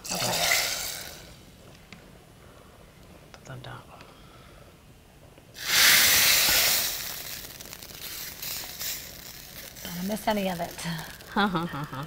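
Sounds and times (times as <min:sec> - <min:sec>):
hot oil sizzling in lentils: 0:05.6 - 0:12.0.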